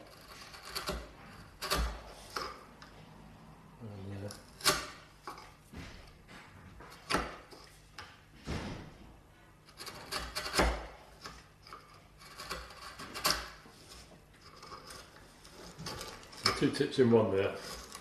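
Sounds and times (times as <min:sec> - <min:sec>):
chisel cracking and scraping wood: 0:00.0 - 0:03.0, 0:04.0 - 0:08.3, 0:09.6 - 0:18.0.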